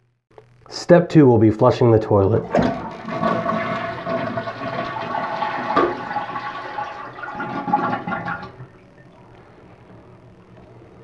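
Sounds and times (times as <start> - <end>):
toilet flushing gurgling water: 2.3 - 9.0.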